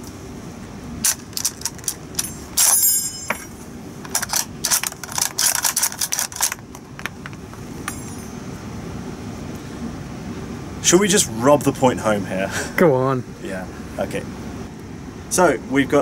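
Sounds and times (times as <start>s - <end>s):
ringing metal clatter: 1.4s - 6.4s, 7.8s - 8.6s
rifle bolt clicks and clacks: 4.1s - 7.1s.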